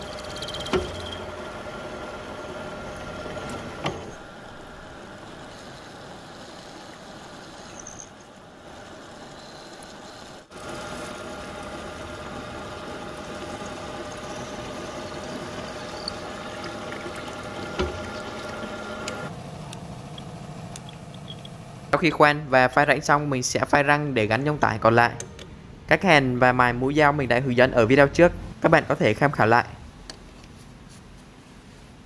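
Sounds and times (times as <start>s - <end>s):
drilling machine humming: 0.0s - 22.0s.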